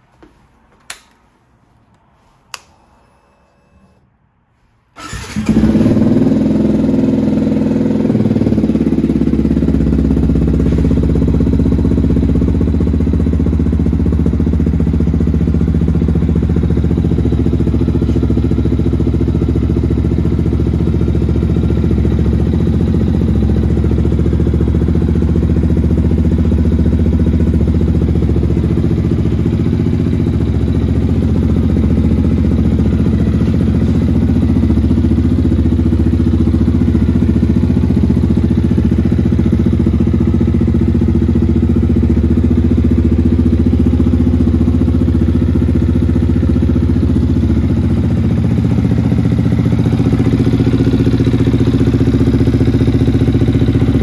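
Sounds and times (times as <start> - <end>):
sharp clicks: 2.5 - 2.8
motorcycle engine starting and idling: 2.5 - 4.1, 4.9 - 54.0.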